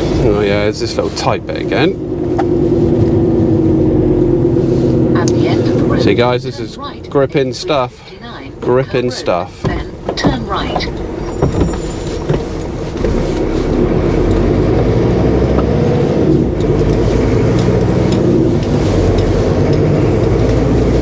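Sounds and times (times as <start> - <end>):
truck diesel engine pulling: 0.0 - 21.0.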